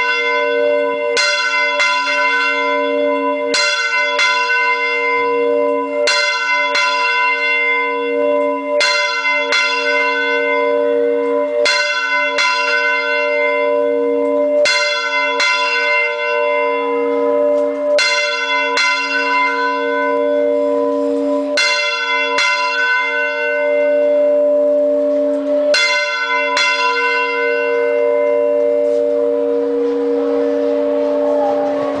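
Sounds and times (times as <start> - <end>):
church bell ringing: 0.0 - 32.0.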